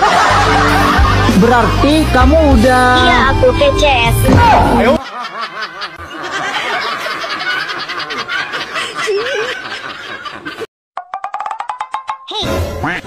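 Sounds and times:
high-pitched giggling laughter: 5.0s - 10.6s.

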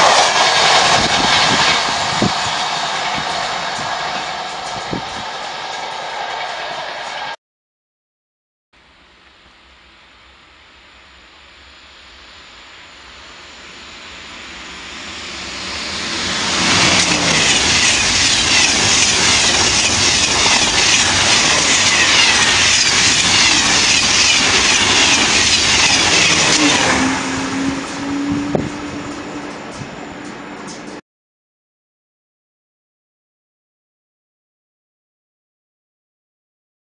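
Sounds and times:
high-speed train passing: 0.0s - 7.4s, 8.8s - 31.0s.

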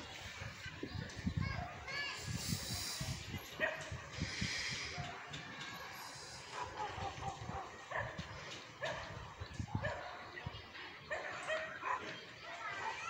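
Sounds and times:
dog barking: 3.6s - 4.0s, 6.5s - 8.2s, 8.8s - 9.2s, 9.8s - 10.2s, 11.1s - 12.2s.

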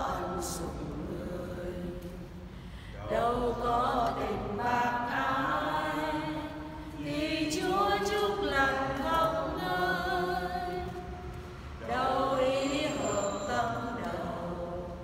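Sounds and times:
congregation singing a hymn: 0.0s - 15.0s.

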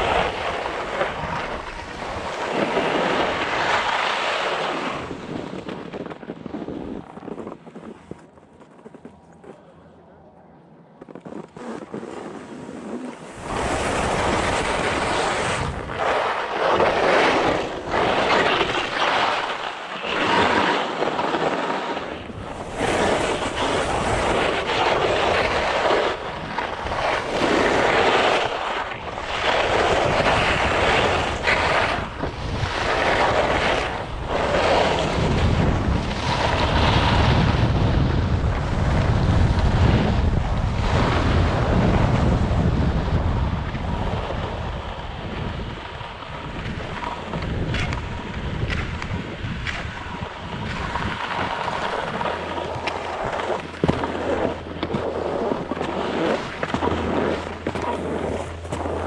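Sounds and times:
skis scraping on snow: 0.0s - 9.6s, 11.0s - 59.0s
wind buffeting microphone: 12.7s - 59.0s.

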